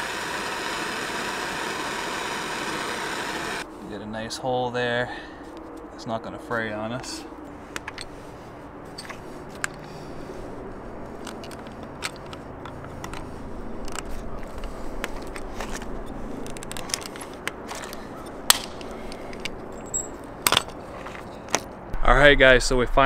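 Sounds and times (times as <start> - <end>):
sharp rivet snap: 18.5 - 18.9.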